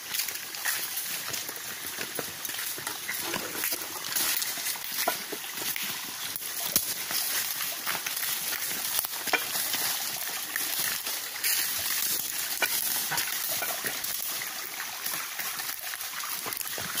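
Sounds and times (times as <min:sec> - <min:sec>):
stream water trickling over rocks: 0:00.0 - 0:17.0
footsteps on stone: 0:00.6 - 0:10.9.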